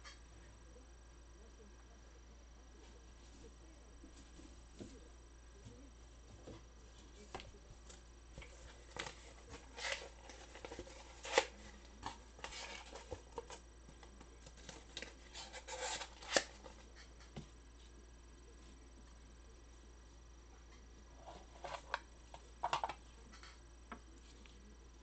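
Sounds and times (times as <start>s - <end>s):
trading cards rustling: 8.4s - 16.9s.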